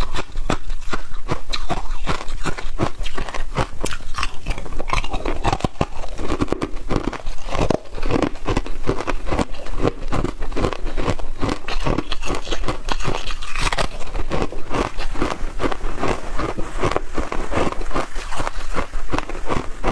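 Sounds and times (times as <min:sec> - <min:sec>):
ice crunching and chewing: 0:00.0 - 0:19.9.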